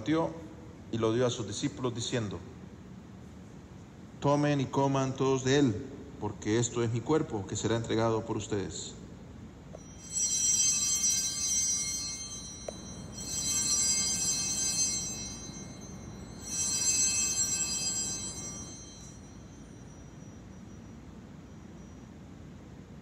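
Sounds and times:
altar bells chiming: 9.8 - 22.6.

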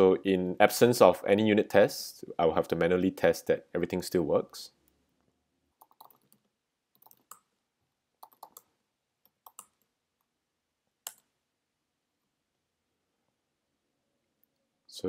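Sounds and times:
faint keyboard typing: 5.8 - 7.5, 8.2 - 10.4.

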